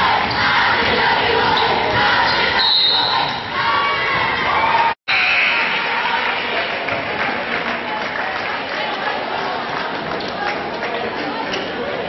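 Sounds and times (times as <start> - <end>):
crowd chattering: 0.0 - 12.0
crowd applauding: 5.2 - 12.0.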